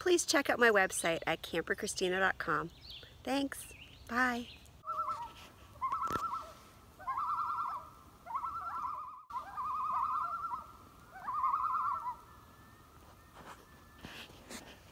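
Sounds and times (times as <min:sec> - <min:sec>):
loon tremolo calls: 0:04.2 - 0:14.1.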